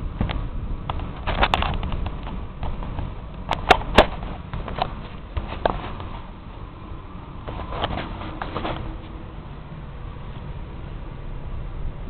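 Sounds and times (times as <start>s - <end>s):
air conditioner unit rumbling: 0.0s - 12.0s
sharp clicks and knocks: 0.2s - 6.3s.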